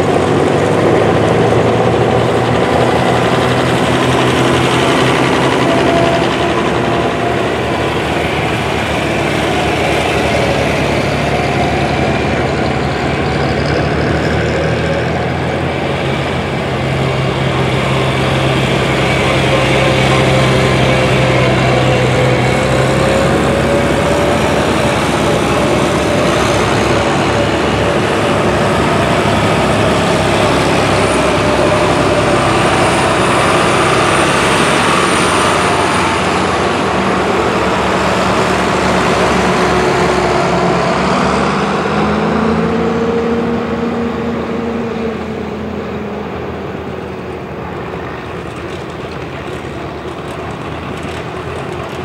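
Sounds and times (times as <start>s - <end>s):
tractors driving past: 0.0s - 52.0s.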